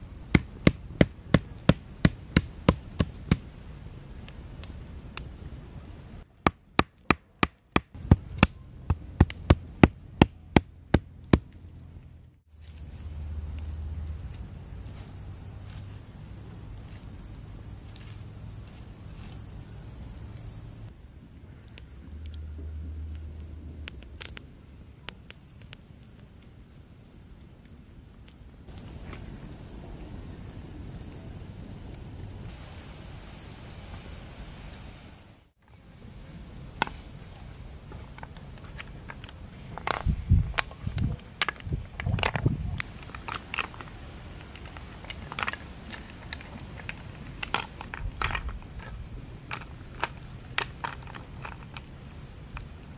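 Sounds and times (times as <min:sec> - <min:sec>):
crickets trilling: 0:00.0 - 0:52.9
stick pounding against log: 0:00.3 - 0:03.5, 0:06.4 - 0:11.6
wood fire crackling: 0:20.9 - 0:29.4.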